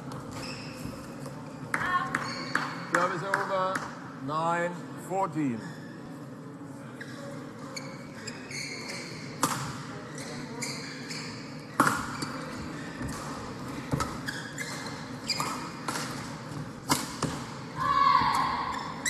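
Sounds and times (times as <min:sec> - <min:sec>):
shoes squeaking on floor: 0:00.2 - 0:01.3, 0:02.1 - 0:02.8, 0:07.0 - 0:09.4, 0:10.0 - 0:15.8.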